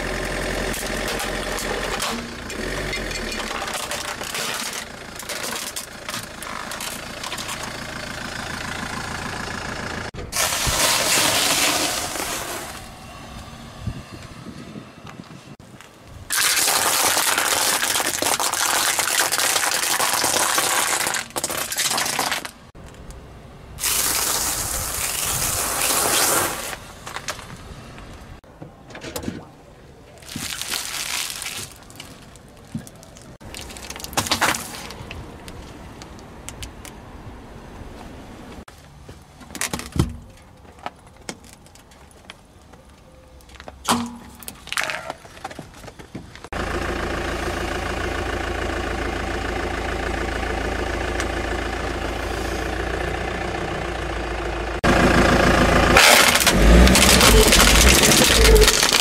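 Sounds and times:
tyre and road noise: 0:00.0 - 0:59.0
objects cracking and popping: 0:16.3 - 0:22.7, 0:30.2 - 0:35.2, 0:43.4 - 0:45.9, 0:56.0 - 0:59.0.

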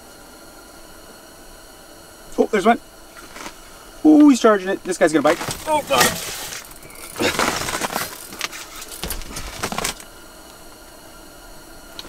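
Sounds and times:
clothing and fishing gear rustling: 0:03.1 - 0:04.0, 0:05.2 - 0:10.1.

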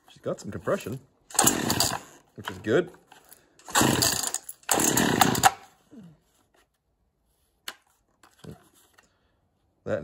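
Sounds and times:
chainsaw engine pull-started: 0:01.3 - 0:02.7, 0:03.6 - 0:05.8.

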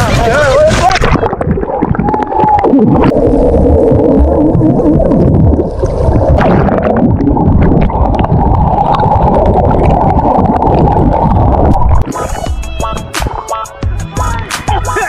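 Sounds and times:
muffled underwater rushing and bubbling: 0:00.0 - 0:13.4
music: 0:12.0 - 0:15.0.

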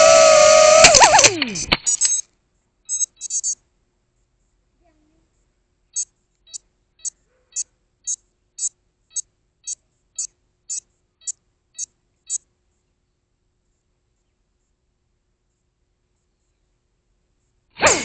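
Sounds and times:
short high-pitched beeps: 0:01.6 - 0:02.3, 0:02.9 - 0:03.6.

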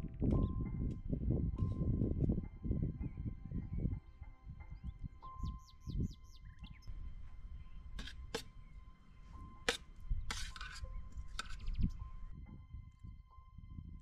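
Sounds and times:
birds chirping: 0:03.6 - 0:12.3
spoon clinking on steel plate: 0:09.6 - 0:12.3.

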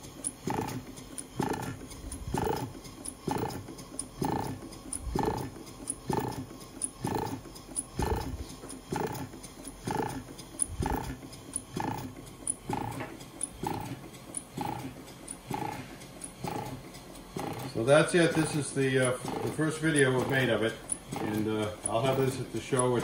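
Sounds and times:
air pump working: 0:00.0 - 0:23.0
steam engine exhaust chuffing: 0:00.0 - 0:23.0.

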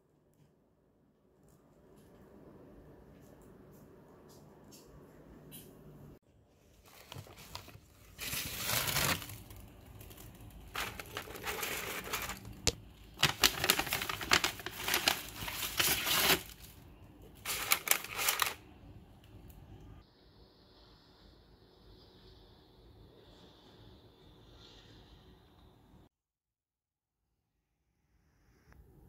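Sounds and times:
paper crinkling: 0:06.7 - 0:18.6.

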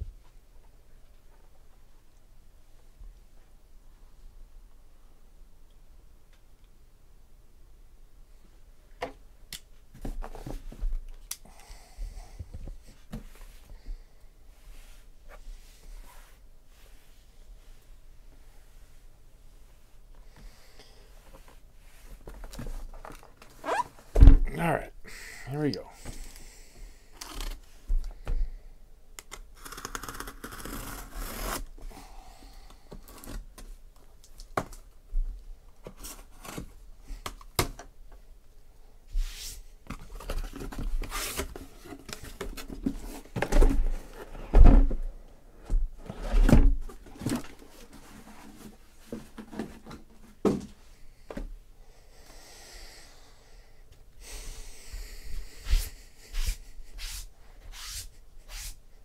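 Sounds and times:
cardboard rustling and scraping: 0:39.2 - 0:45.0, 0:46.0 - 0:50.7.

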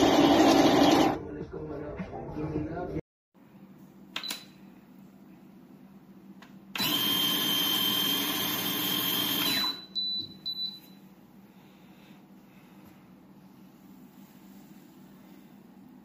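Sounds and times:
coffee grinder motor whining: 0:00.0 - 0:01.2, 0:06.8 - 0:09.8.

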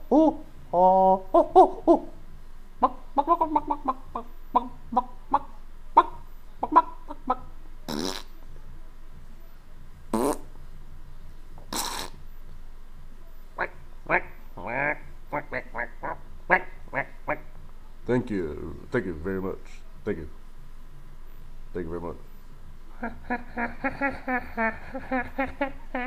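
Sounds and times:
chicken clucking: 0:02.8 - 0:07.5
short pitched calls: 0:02.8 - 0:08.5, 0:10.1 - 0:10.6, 0:11.6 - 0:12.3, 0:13.6 - 0:17.6
fart noises: 0:07.9 - 0:08.4, 0:10.1 - 0:10.5, 0:11.6 - 0:12.2.

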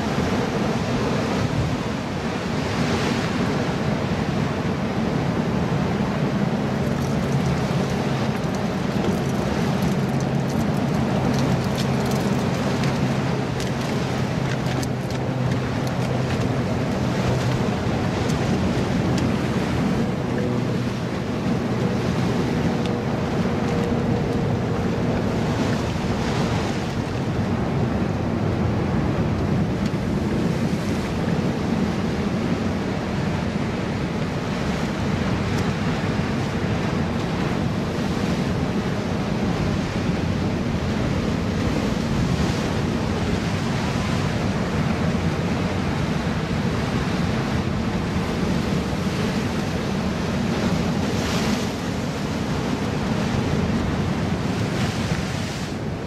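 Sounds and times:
ocean surf breaking on rocks: 0:00.0 - 0:56.0.

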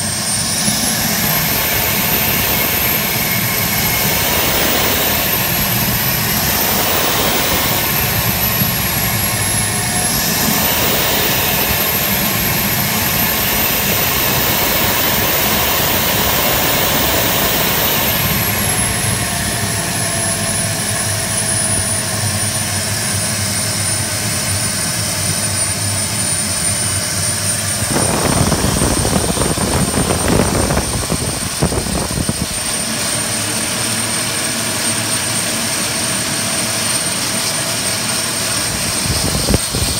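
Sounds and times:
loud rushing noise: 0:00.0 - 0:21.5, 0:27.5 - 0:33.4
turboprop engine whine: 0:00.0 - 0:39.9.

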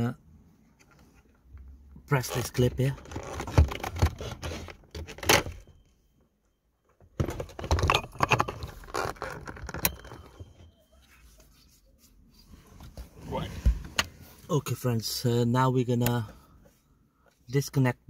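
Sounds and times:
plastic and wires rustling: 0:07.2 - 0:11.8.

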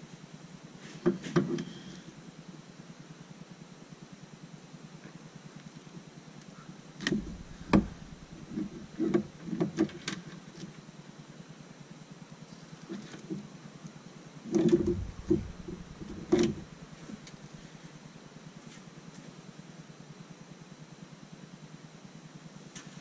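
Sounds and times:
steady low hum: 0:00.0 - 0:23.0
dull thump: 0:07.0 - 0:09.8, 0:14.6 - 0:16.8.

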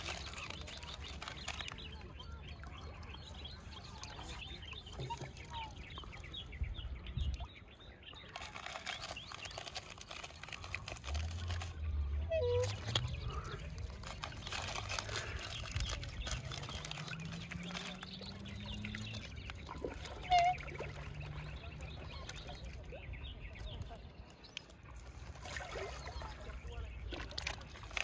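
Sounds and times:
rustle with small clicks: 0:08.3 - 0:11.8
waterfowl calling: 0:19.7 - 0:21.1.

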